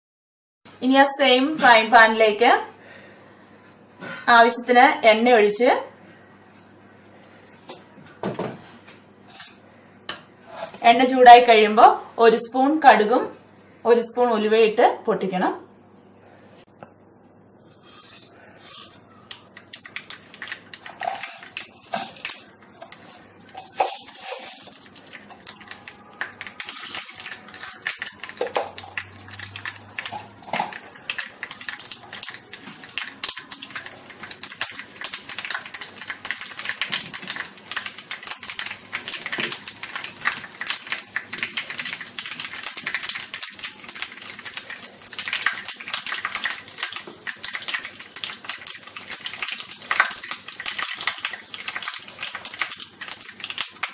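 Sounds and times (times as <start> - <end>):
seeds popping in hot oil: 18.6 - 53.9.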